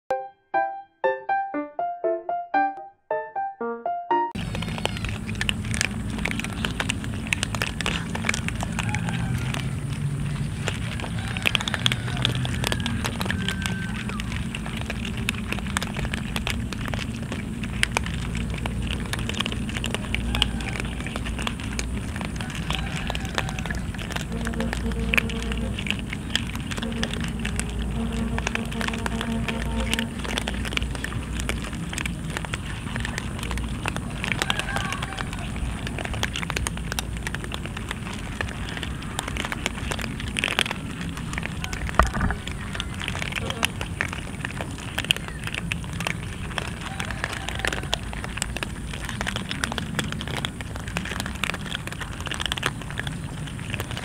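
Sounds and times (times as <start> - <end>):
cats crunching dry kibble: 4.4 - 54.0
steady low hum: 14.4 - 34.3.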